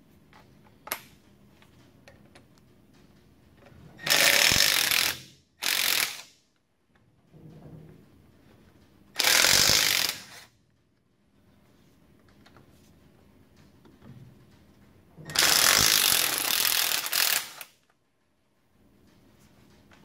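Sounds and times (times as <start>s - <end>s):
impact wrench hammering: 4.0s - 6.3s, 9.2s - 10.4s, 15.3s - 17.7s.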